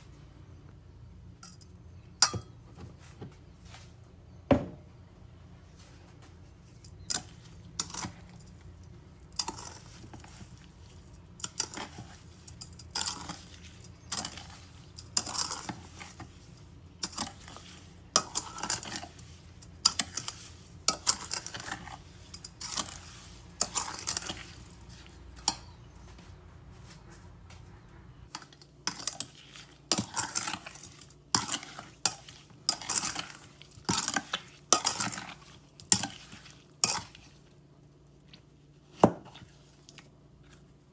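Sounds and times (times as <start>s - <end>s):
metal spoon scraping a bowl: 17.0s - 25.9s, 28.4s - 37.3s.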